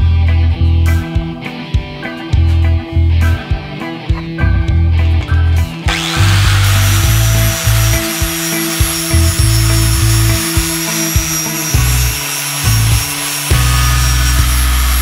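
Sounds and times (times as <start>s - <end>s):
angle grinder grinding metal: 5.9s - 15.0s.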